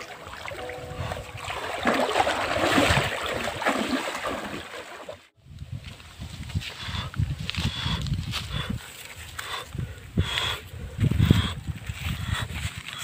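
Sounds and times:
person wading through river: 0:00.0 - 0:05.3.

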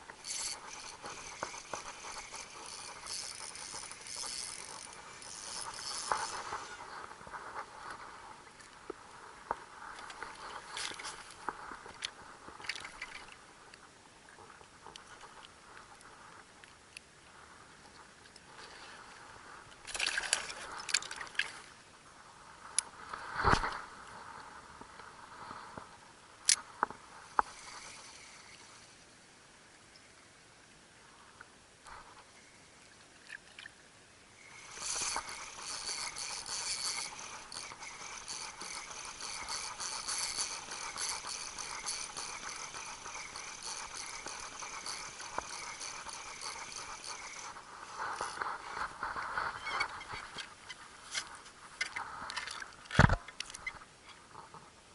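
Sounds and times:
spinning reel whirring: 0:00.1 - 0:07.7, 0:27.3 - 0:29.0, 0:34.4 - 0:50.4.

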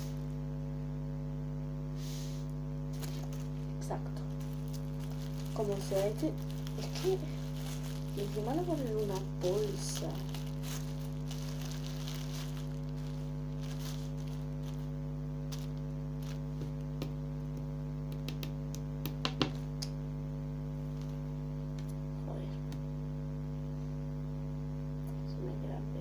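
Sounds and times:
electrical mains hum: 0:00.0 - 0:26.0
plastic bag crinkling: 0:02.9 - 0:17.2.

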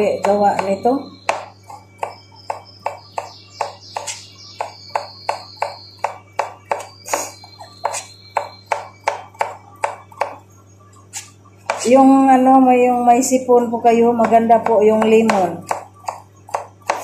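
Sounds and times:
knife chopping on cutting board: 0:00.2 - 0:10.4, 0:11.1 - 0:11.9, 0:14.2 - 0:17.0.

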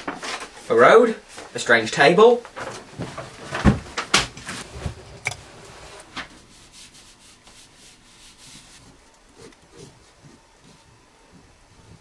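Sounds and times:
paper rustling: 0:00.0 - 0:00.7
pen scratching on paper: 0:07.7 - 0:12.0.

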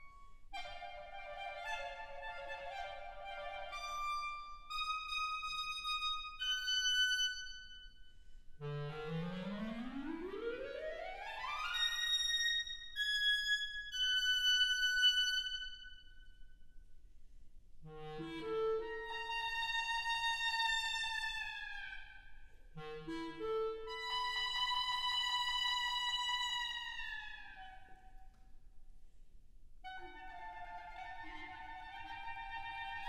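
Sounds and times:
solo clarinet playing: 0:00.6 - 0:07.6, 0:08.6 - 0:10.6, 0:17.9 - 0:22.0, 0:22.7 - 0:27.8, 0:29.8 - 0:33.0.

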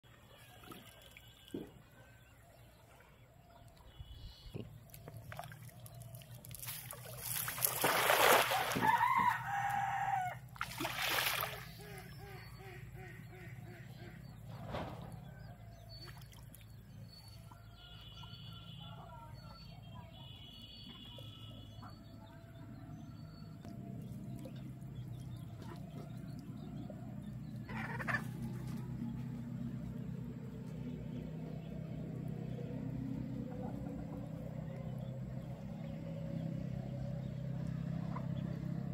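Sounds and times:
birds calling: 0:00.3 - 0:38.9
net splashing into water: 0:05.1 - 0:09.8, 0:10.5 - 0:12.0
rooster crowing: 0:08.5 - 0:10.4.

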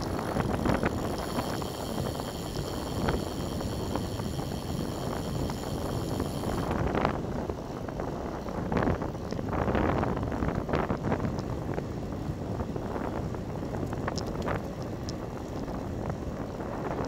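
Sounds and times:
steady road rumble: 0:00.0 - 0:17.0
wind buffeting microphone: 0:00.0 - 0:17.0
small clicks and knocks: 0:13.8 - 0:15.7.

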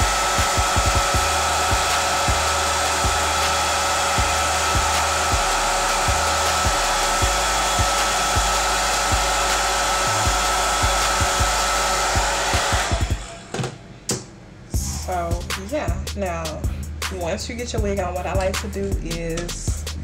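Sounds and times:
hair dryer running: 0:00.0 - 0:13.8.

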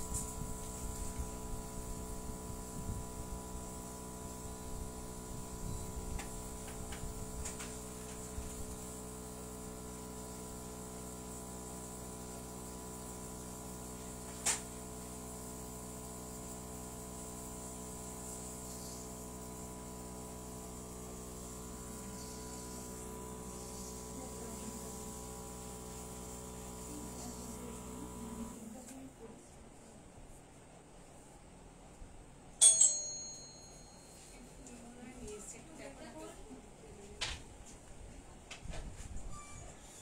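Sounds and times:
electrical hum: 0:00.0 - 0:15.7, 0:16.6 - 0:32.3.

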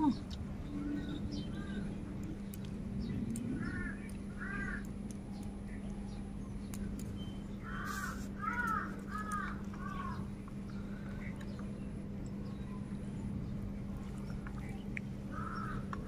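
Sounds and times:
low hum: 0:00.0 - 0:16.0
crows cawing: 0:03.6 - 0:04.9, 0:07.6 - 0:10.3, 0:15.3 - 0:16.0.

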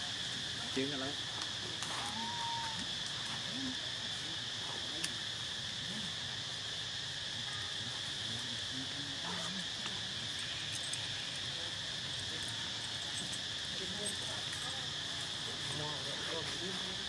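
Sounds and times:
insect chorus drone: 0:00.0 - 0:17.0.

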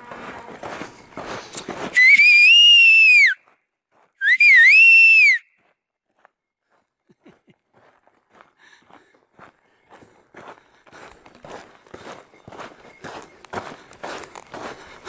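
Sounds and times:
person whistling loudly: 0:01.9 - 0:03.4, 0:04.2 - 0:05.5.

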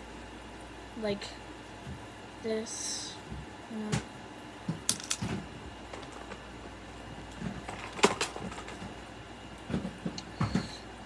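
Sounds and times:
plastic toys clicking and knocking: 0:04.8 - 0:06.4, 0:07.4 - 0:08.9.

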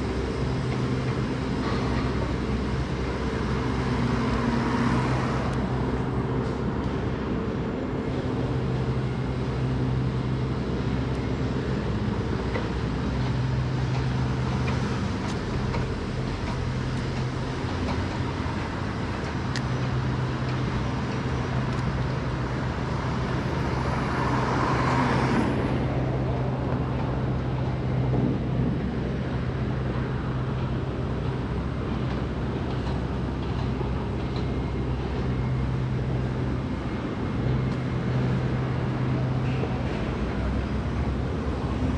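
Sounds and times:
cars passing: 0:00.0 - 0:41.9
low engine hum: 0:00.0 - 0:41.9.

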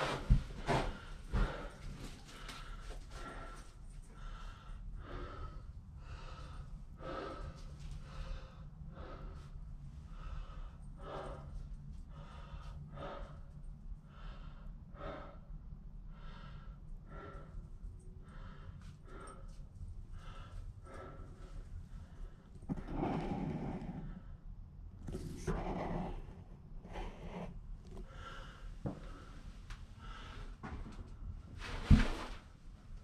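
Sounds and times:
person breathing close to microphone: 0:00.0 - 0:13.5, 0:18.2 - 0:24.4, 0:25.1 - 0:30.7
low steady rumble: 0:00.0 - 0:33.0.

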